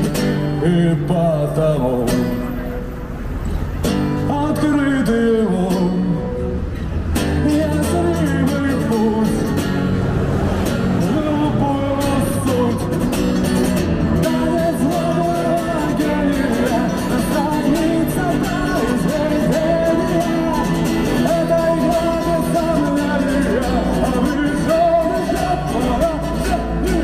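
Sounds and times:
guitar accompaniment: 0.0 - 27.0
person singing: 14.2 - 27.0.

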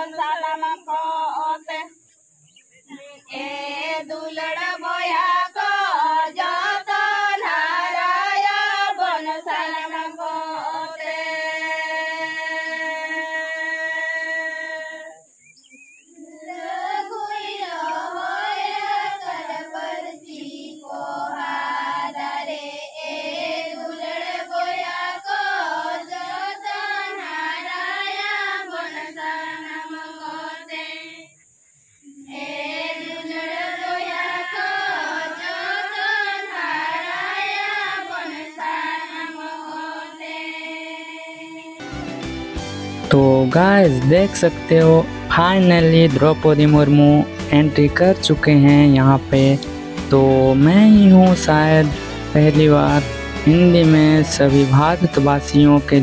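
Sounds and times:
women and girls singing: 0.0 - 2.0, 2.9 - 15.3, 16.1 - 31.4, 32.1 - 41.8.

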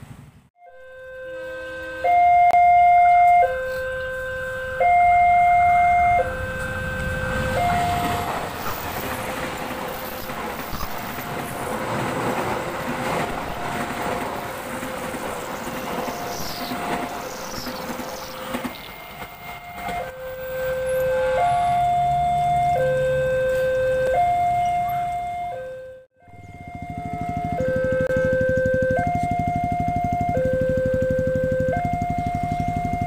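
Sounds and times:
level crossing two-tone alarm: 0.6 - 12.2, 13.1 - 33.0
train wheels on rails: 5.6 - 25.0.

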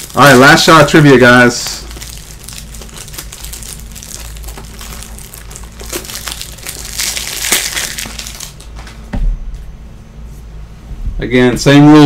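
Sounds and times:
plastic wrapping crinkling: 0.0 - 9.0.

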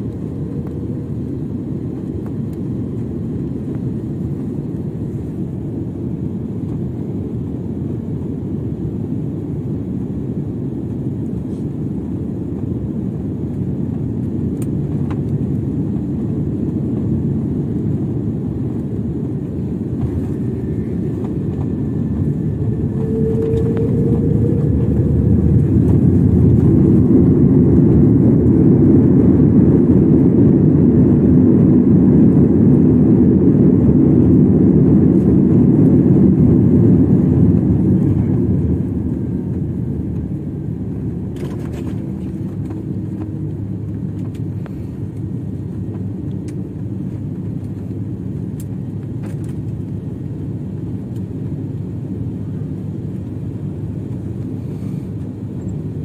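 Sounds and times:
jet engines roaring: 0.0 - 56.0
runway rumble: 18.6 - 29.3.

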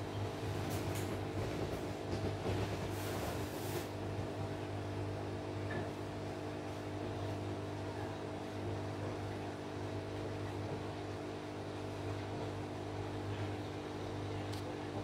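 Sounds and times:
aquarium pump humming: 0.0 - 15.0.

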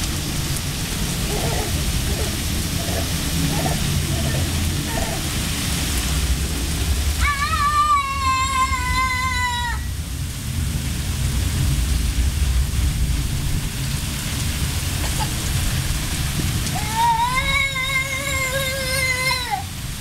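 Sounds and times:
low rumble: 0.0 - 16.8
child high-pitched vocal call: 1.3 - 5.3, 7.2 - 9.9, 16.8 - 19.7.

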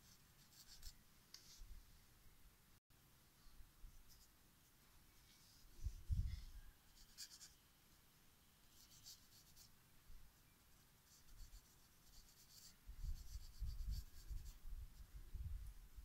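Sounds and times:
pencil scratching on paper: 0.0 - 1.6, 6.9 - 7.6, 8.7 - 9.7, 11.1 - 14.6.

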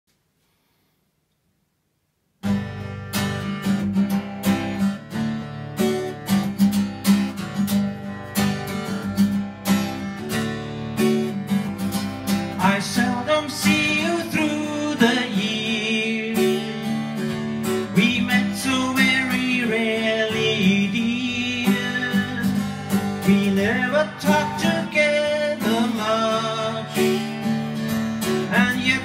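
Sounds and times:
acoustic guitar strumming: 2.4 - 29.0
man singing: 12.5 - 17.0, 17.8 - 27.6, 28.2 - 29.0.

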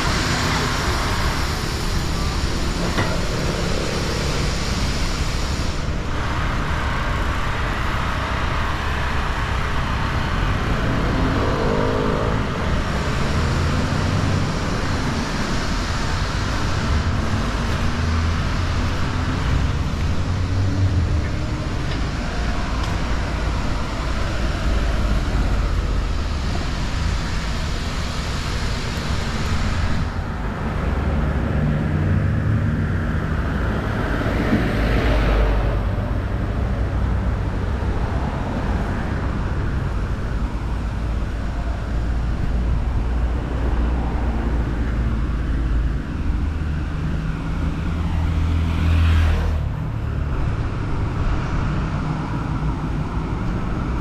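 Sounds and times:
street traffic passing: 0.0 - 54.0.

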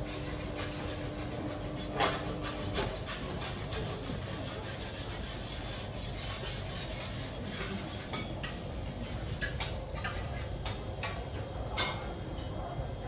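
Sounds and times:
utensil scraping: 0.0 - 10.7.

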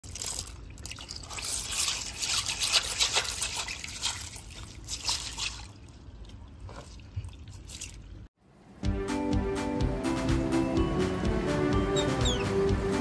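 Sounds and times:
water splashing and trickling: 0.0 - 8.4.

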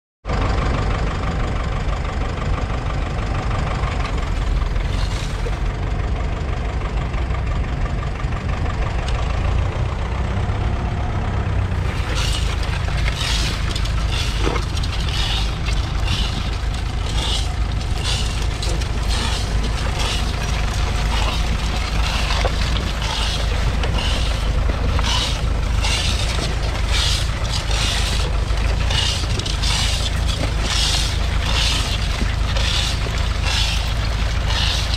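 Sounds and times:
tractor diesel engine under load: 0.2 - 34.9
short crackling noises: 11.8 - 34.9.

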